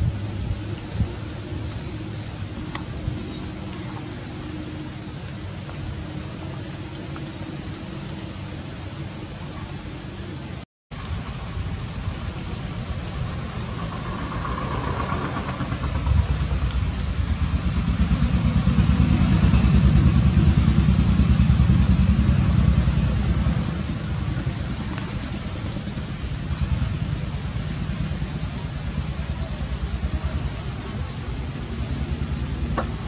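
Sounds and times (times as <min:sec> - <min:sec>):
engine running with low pulsing: 0:00.0 - 0:33.0.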